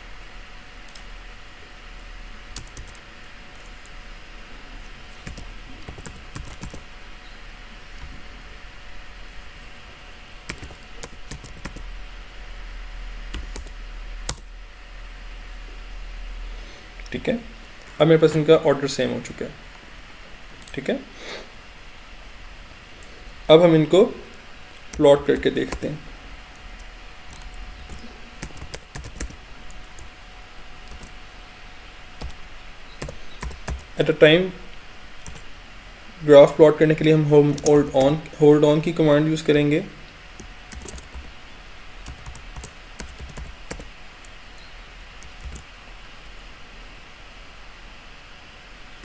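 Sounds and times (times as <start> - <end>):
faint steady hiss: 0.0 - 49.0
keyboard typing: 2.5 - 3.0, 5.1 - 6.9, 10.5 - 11.9, 13.3 - 14.5, 24.3 - 30.1, 30.8 - 31.2, 32.2 - 34.0, 35.2 - 35.5, 37.4 - 38.3, 40.4 - 41.3, 42.0 - 43.9, 45.2 - 45.7.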